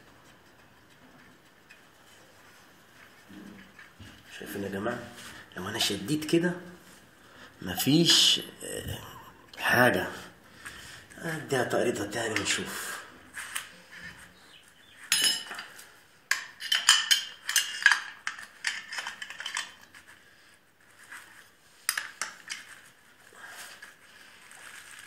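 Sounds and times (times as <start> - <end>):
metal tools clanking: 15.1 - 19.6.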